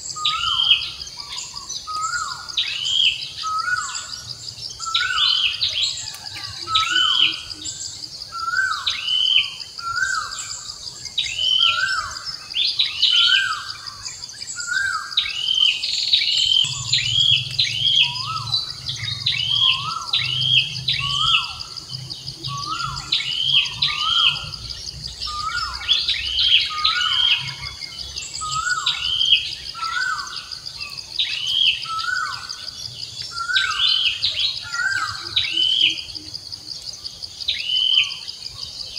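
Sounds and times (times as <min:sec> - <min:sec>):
higher bird chirps: 0:00.0 - 0:32.7
insect drone: 0:00.0 - 0:38.9.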